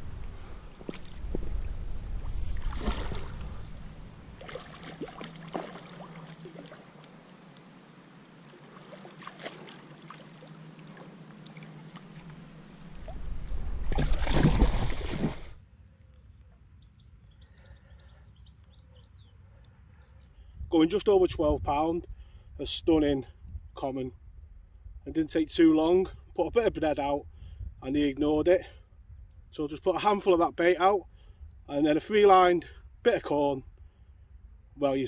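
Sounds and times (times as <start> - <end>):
low rumble on microphone: 0.0 - 6.6, 10.8 - 15.6
fish splashing and thrashing: 0.5 - 7.1, 8.5 - 15.6
faint bird chirps: 15.8 - 20.4.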